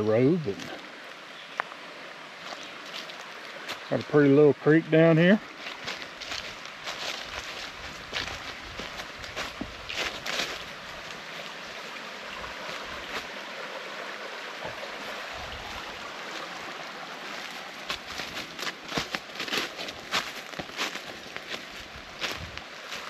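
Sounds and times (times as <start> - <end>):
creek running over rocks: 0.0 - 23.0
footsteps on dry leaves: 2.4 - 3.9, 5.4 - 13.6, 14.7 - 23.0.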